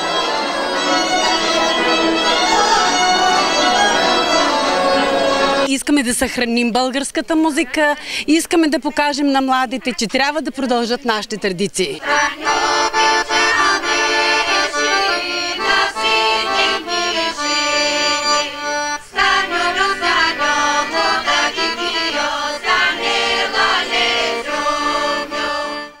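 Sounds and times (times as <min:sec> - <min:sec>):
accordion folk tune: 0:00.0 - 0:05.8, 0:12.0 - 0:26.0.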